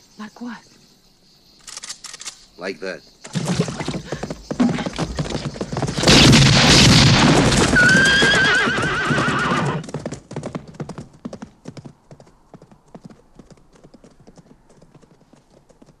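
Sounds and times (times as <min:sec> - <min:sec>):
horses galloping: 0:03.3 - 0:16.0
horse neighing: 0:07.6 - 0:09.8.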